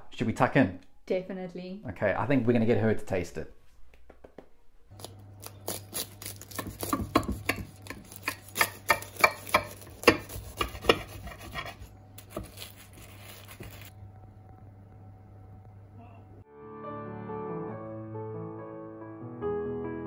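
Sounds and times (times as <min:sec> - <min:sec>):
knife crunching pastry crust: 0:05.0 - 0:13.9.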